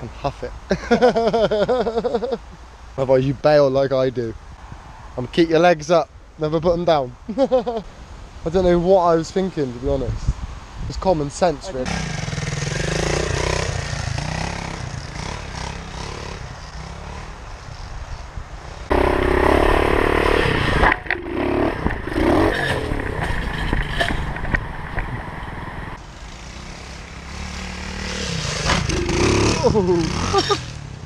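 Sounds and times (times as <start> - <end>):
pit bike engines revving: 11.6 - 31.0.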